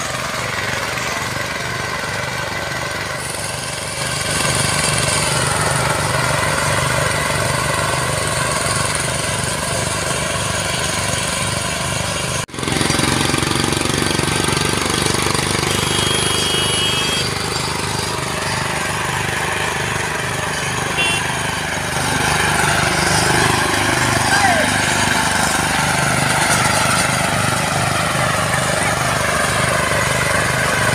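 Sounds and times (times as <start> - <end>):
power tiller engines chugging: 0.0 - 30.9.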